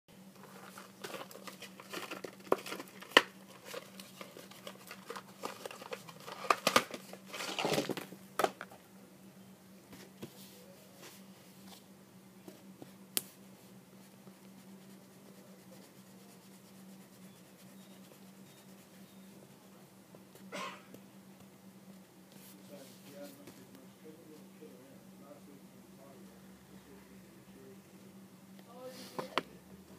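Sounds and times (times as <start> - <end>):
paper rustling and crinkling: 0.4 - 8.6
steady low hum: 3.3 - 29.9.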